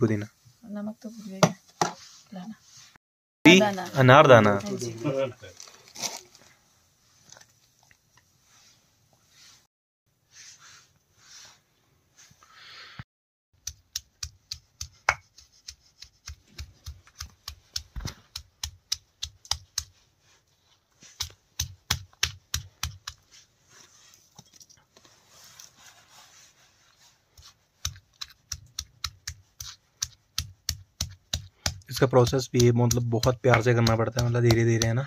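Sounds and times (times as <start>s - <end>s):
stone tapping on grinding stone: 13.6s - 19.9s, 27.8s - 35.0s.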